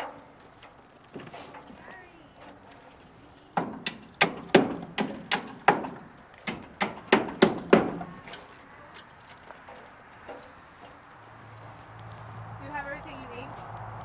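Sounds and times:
hammer striking nails into wood: 3.6 - 8.2.

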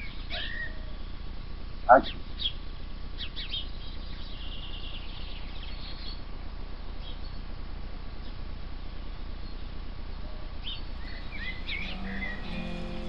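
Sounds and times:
small birds chirping: 3.2 - 6.2, 10.6 - 13.0
bird trill: 10.6 - 13.0.

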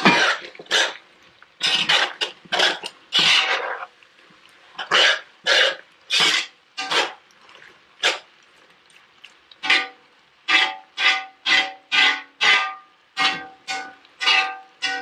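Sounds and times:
metal spoon scraping a pan: 0.0 - 1.0, 1.6 - 3.9, 4.8 - 7.2, 9.6 - 15.0.

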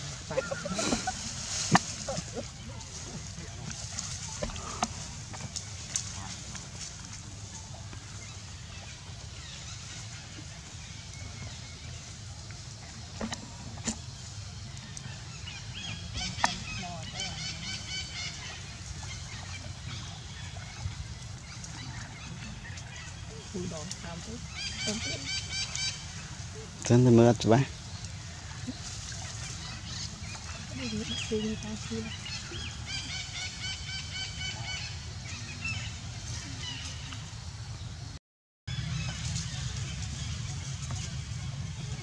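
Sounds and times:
animals chirping and squeaking: 12.8 - 26.8
low steady rumble: 27.6 - 42.0.

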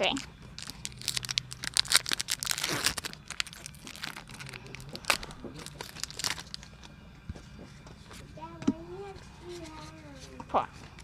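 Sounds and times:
foil wrapper crinkling: 0.0 - 6.9.

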